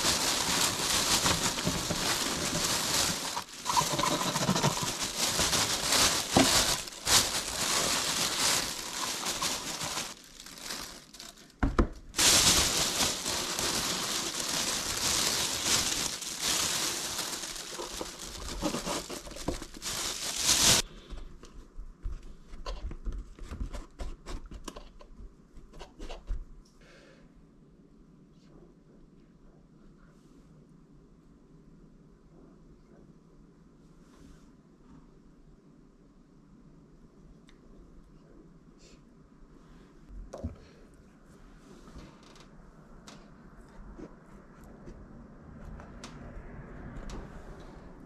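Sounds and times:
plastic bag crinkling: 0:00.0 - 0:20.9.

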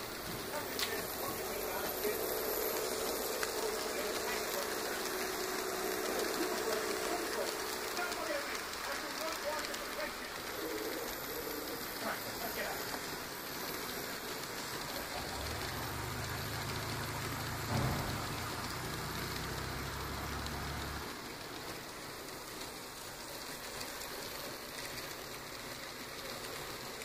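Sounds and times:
low hum: 0:00.0 - 0:21.1
model train wheels rattling on rails: 0:00.0 - 0:27.0.

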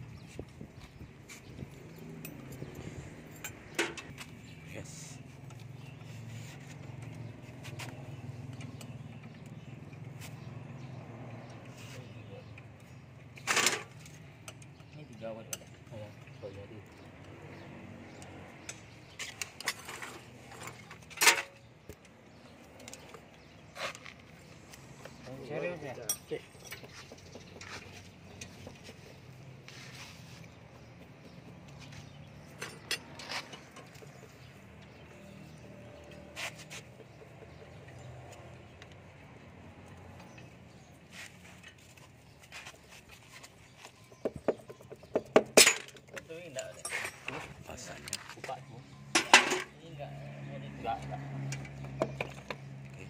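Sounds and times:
hand tools clinking on metal: 0:01.8 - 0:04.2, 0:18.2 - 0:21.7, 0:25.7 - 0:28.5, 0:31.8 - 0:34.4, 0:44.8 - 0:49.8
metal clicks and scrapes: 0:18.2 - 0:25.1.

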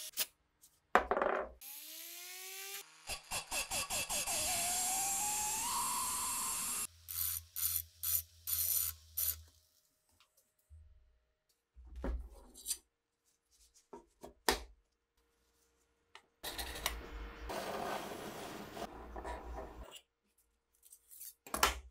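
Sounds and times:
drill boring into steel: 0:01.6 - 0:09.4.

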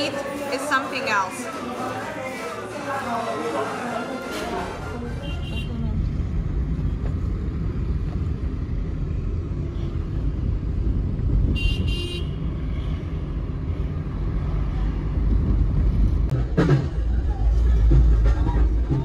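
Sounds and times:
traffic rumble and road noise: 0:00.0 - 0:19.0
vehicle horn honking: 0:04.3 - 0:05.9, 0:11.5 - 0:13.0.

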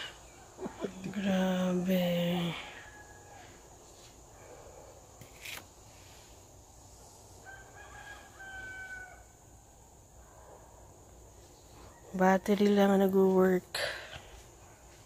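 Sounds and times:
rooster crowing faintly: 0:02.5 - 0:03.8, 0:07.4 - 0:09.6.

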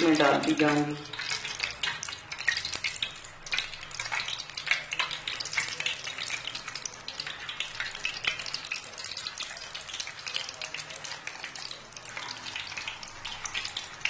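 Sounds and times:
oil sizzling and crackling: 0:00.0 - 0:14.0.

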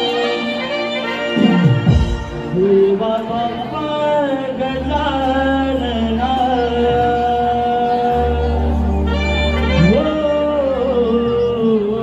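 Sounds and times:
man singing long gliding notes: 0:02.3 - 0:12.0.

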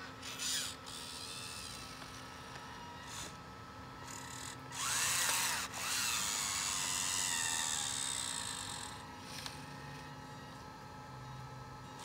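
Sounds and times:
small electric motors whining: 0:00.0 - 0:12.0.

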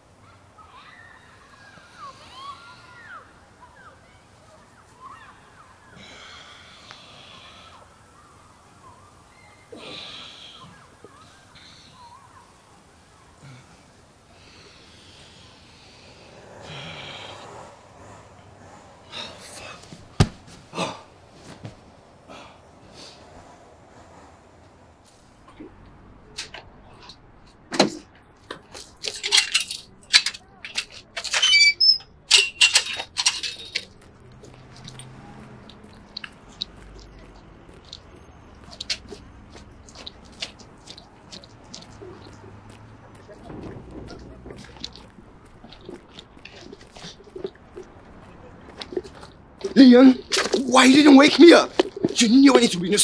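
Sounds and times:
man breathing heavily: 0:06.0 - 0:08.0, 0:13.4 - 0:21.2
chain-link gate clanking: 0:28.9 - 0:34.0
metallic squeak: 0:31.2 - 0:33.7.

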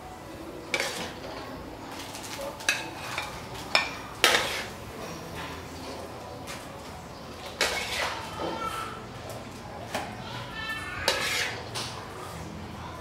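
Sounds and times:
utensil scraping steel wok: 0:00.5 - 0:06.2, 0:07.4 - 0:09.0, 0:10.7 - 0:12.4.

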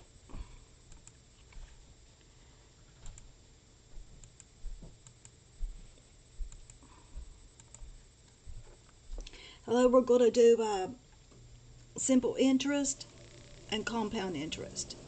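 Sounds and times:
computer mouse clicking: 0:00.9 - 0:01.6, 0:04.2 - 0:05.4, 0:06.5 - 0:06.8, 0:07.6 - 0:07.9.

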